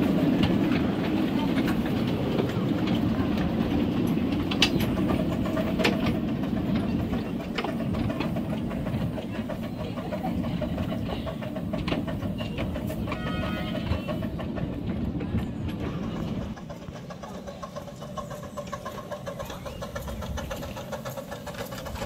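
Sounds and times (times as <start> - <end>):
miniature train rumbling on track: 0.0 - 22.0
wheels clicking over rail joints: 0.0 - 22.0.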